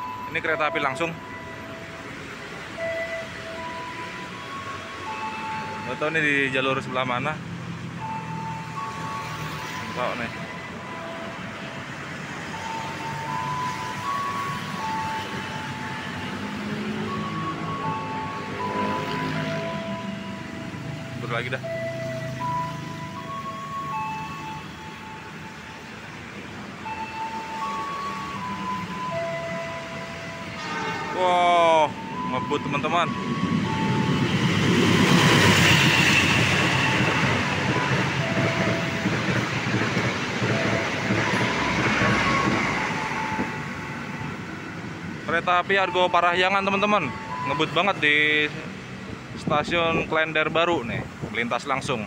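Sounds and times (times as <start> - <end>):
train wheels rumbling and clattering: 29.9 - 45.2.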